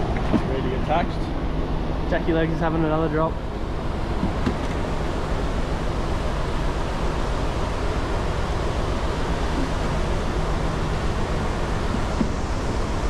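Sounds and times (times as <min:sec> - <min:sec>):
sea noise: 0:03.3 - 0:13.0.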